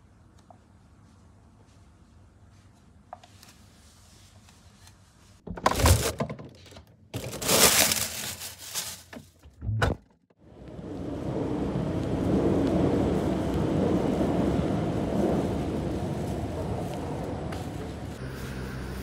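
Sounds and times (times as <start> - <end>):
plastic bag crinkling: 7.2 - 9.3
wind on microphone: 10.7 - 19.0.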